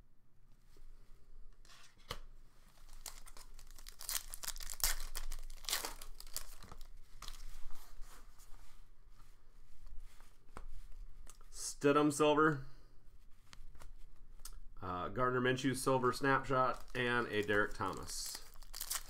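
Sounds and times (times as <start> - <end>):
foil wrapper tearing and crinkling: 2.9 - 7.4, 16.7 - 19.0.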